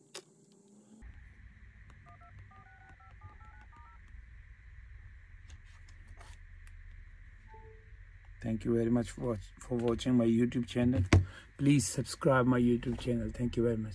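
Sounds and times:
faint low hum: 0:00.6 - 0:13.9
phone keypad tone beeps: 0:01.9 - 0:04.0, 0:07.5 - 0:07.9.

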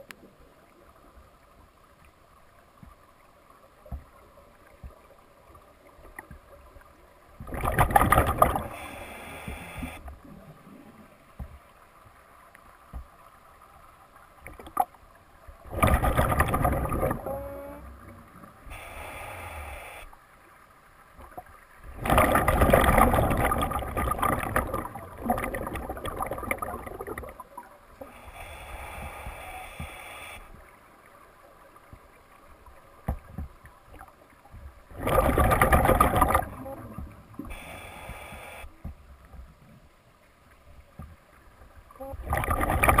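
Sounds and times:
faint clicks and ticks: 0:00.0 - 0:43.0
exhaled bubbles underwater: 0:07.4 - 0:11.1, 0:15.6 - 0:18.8, 0:21.3 - 0:28.2, 0:34.8 - 0:38.2, 0:42.0 - 0:43.0
regulator breathing hiss: 0:08.7 - 0:10.0, 0:18.6 - 0:20.2, 0:28.0 - 0:30.5, 0:37.4 - 0:38.7.

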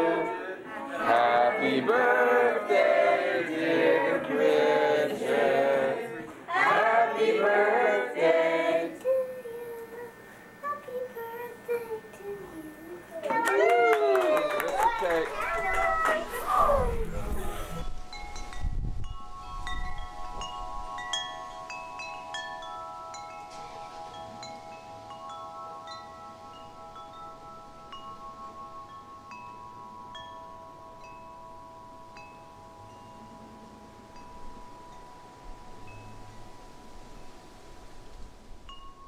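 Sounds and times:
wind chimes ringing: 0:14.6 - 0:39.0.

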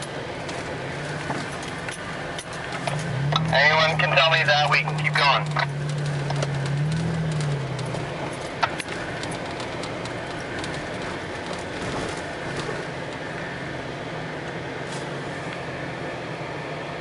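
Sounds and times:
road noise: 0:00.0 - 0:17.0
vehicle engine low hum: 0:00.0 - 0:17.0
clicks and rattles: 0:04.9 - 0:13.2.

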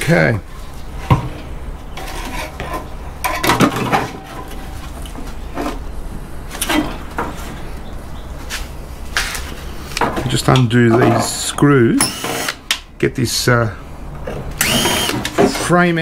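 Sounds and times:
metal clanks and scrapes: 0:01.0 - 0:05.9, 0:06.5 - 0:07.7, 0:08.5 - 0:11.5.

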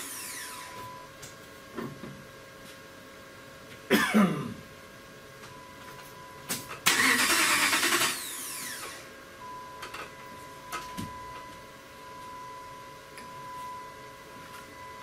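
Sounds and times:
starter cranking engine: 0:06.9 - 0:08.9.

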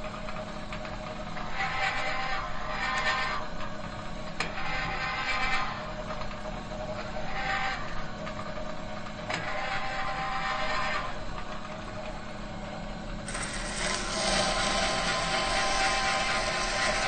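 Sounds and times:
metal machinery humming: 0:08.9 - 0:17.0
mechanical whirring: 0:13.2 - 0:17.0.

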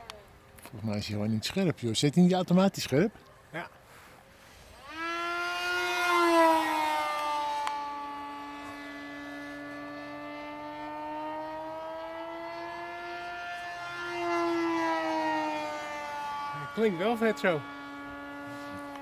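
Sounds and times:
model plane electric motor whining: 0:04.4 - 0:19.0.

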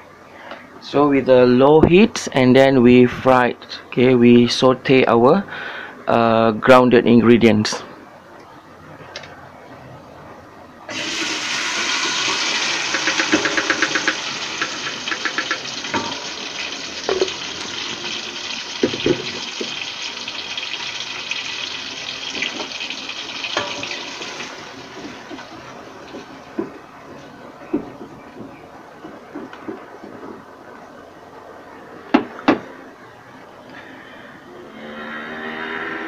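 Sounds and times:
paste sizzling in hot oil: 0:10.9 - 0:25.6
knocks against pot: 0:12.8 - 0:16.3.

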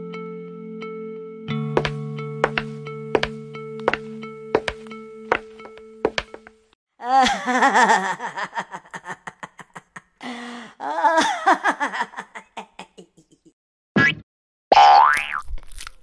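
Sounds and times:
cartoon gorilla laughing: 0:07.0 - 0:10.2, 0:10.8 - 0:13.5.

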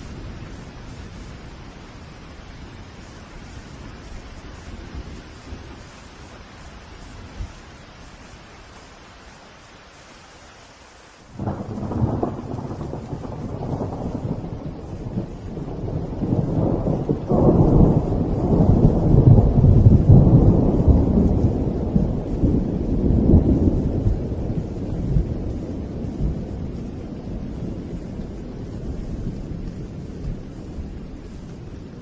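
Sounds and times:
steady rain hiss: 0:00.0 - 0:32.0
deep thunder rumble: 0:11.4 - 0:32.0.

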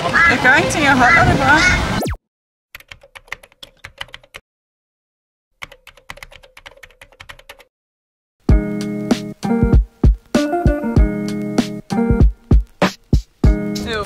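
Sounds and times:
music: 0:08.4 - 0:14.0.

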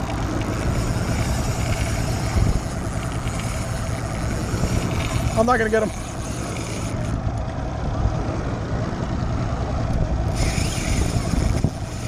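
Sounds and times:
outboard motor rumbling: 0:00.0 - 0:12.0.

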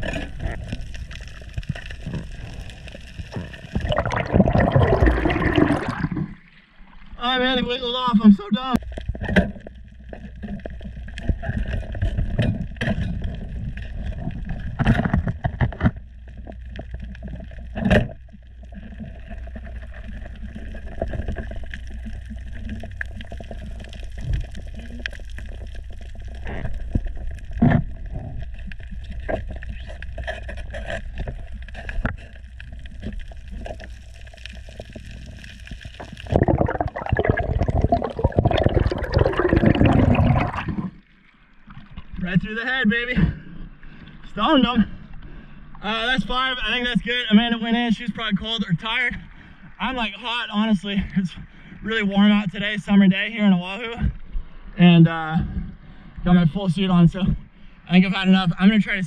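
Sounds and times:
clicks and crackles: 0:00.0 - 0:06.7, 0:08.6 - 0:42.4
underwater low rumble: 0:00.0 - 0:59.0.

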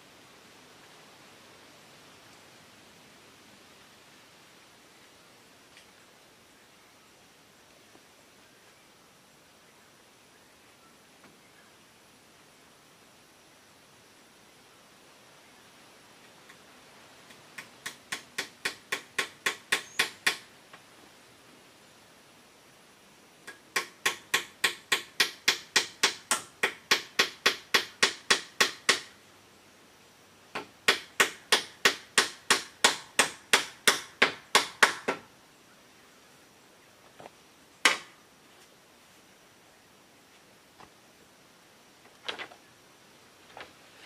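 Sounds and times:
hammer driving nails: 0:17.6 - 0:20.5, 0:23.5 - 0:29.1, 0:30.6 - 0:35.2.

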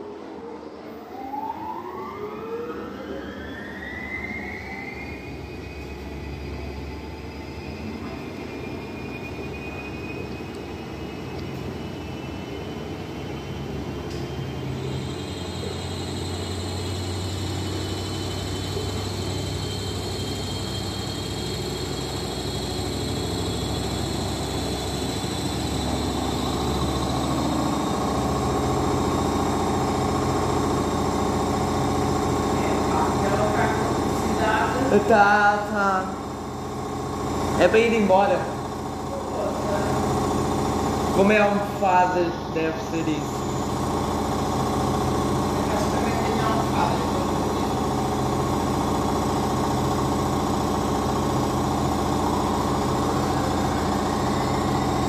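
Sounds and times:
washing machine spin whine: 0:00.0 - 0:55.0.

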